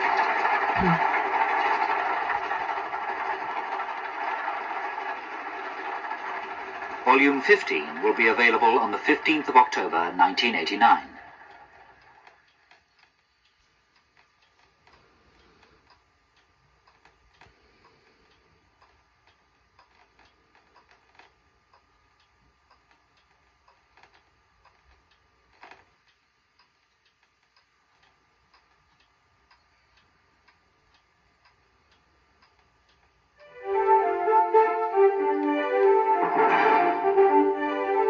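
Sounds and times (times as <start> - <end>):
keyboard music from television: 0.0 - 12.2, 33.4 - 38.0
faint steady hum: 0.0 - 37.2
faint ticking: 6.9 - 33.6.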